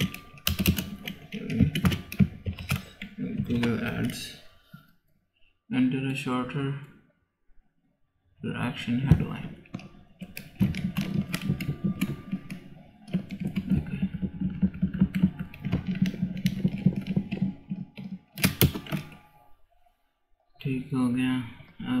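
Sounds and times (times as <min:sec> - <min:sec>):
keyboard typing clicks: 0:00.0 - 0:04.3, 0:09.7 - 0:19.2.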